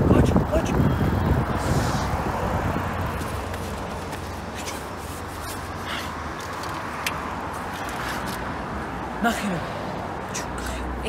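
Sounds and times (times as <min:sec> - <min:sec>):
passing traffic hiss: 0:01.5 - 0:02.9
light clicks and rustles: 0:06.3 - 0:08.5.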